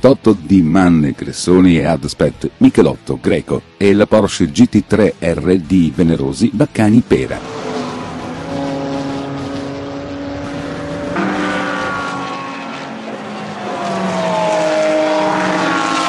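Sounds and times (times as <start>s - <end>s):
race car engines at speed: 6.6s - 16.0s.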